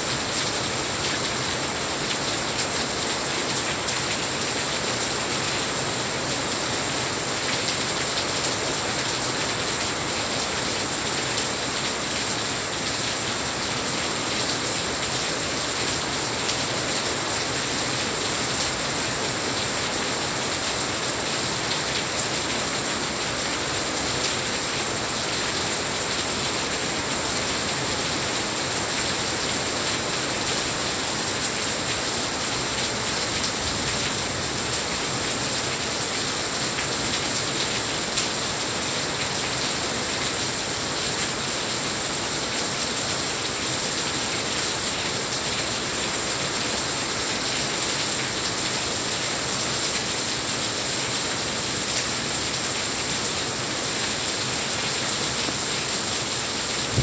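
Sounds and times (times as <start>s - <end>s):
heavy rain: 0.0s - 57.0s.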